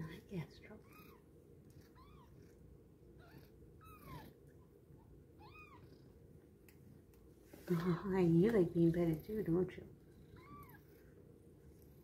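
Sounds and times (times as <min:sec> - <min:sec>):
kittens mewing: 0:03.2 - 0:04.4, 0:10.3 - 0:10.9.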